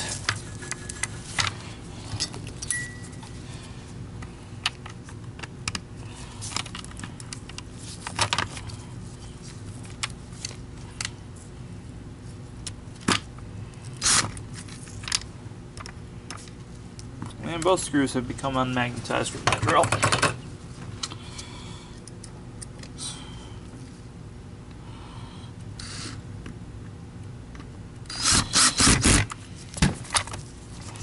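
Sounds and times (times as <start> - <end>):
steady low hum: 0.0 - 31.0
plastic parts clicking and rattling: 6.4 - 8.7.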